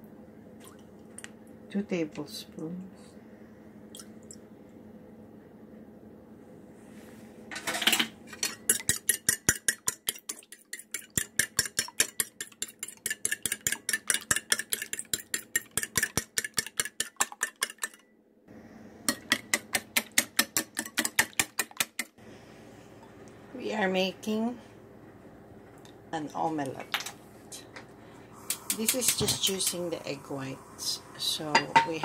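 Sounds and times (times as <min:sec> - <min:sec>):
fork beating in a bowl: 0:08.4 - 0:18.0, 0:19.1 - 0:22.1.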